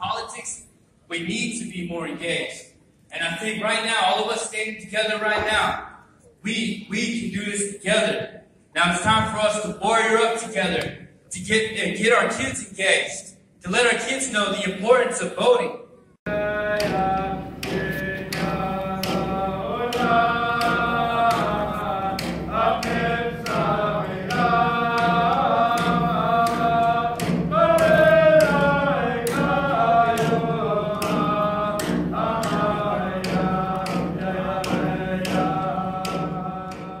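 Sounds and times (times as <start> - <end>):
frame drum beats: 16.3 - 37.0
group of voices singing in unison: 16.3 - 37.0.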